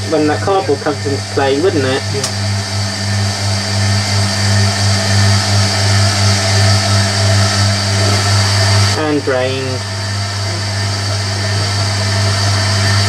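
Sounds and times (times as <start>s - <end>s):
drain pump humming: 0.0s - 13.0s
washing machine drum whirring: 0.0s - 13.0s.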